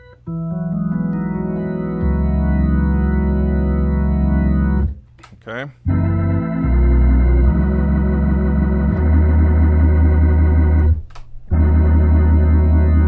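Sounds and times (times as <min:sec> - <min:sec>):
organ sustained chords: 0:00.0 - 0:05.0, 0:05.8 - 0:13.0
organ pedal bass: 0:00.0 - 0:05.1, 0:05.8 - 0:13.0.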